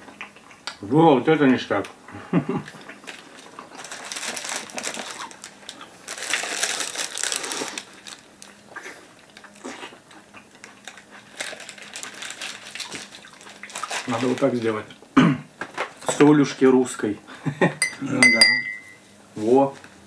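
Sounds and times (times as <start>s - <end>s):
biting and chewing food: 2.7s - 14.1s
paper wrapper crinkling: 3.1s - 8.6s, 10.8s - 14.7s.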